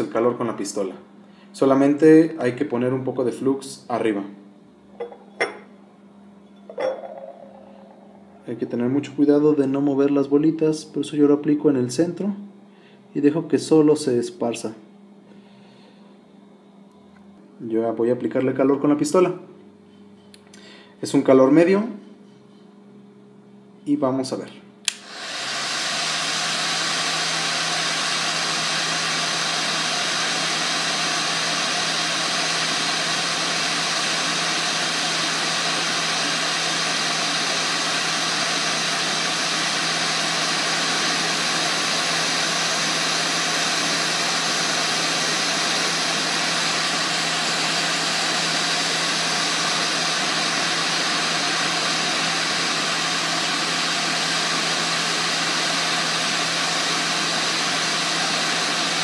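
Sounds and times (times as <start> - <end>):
steady low hum: 0.0 - 21.2
hot-air gun blowing: 24.9 - 59.0.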